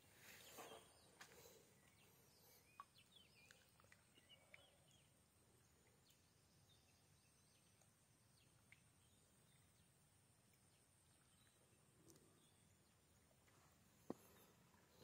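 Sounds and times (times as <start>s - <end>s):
faint bird chirps: 0.0s - 9.9s.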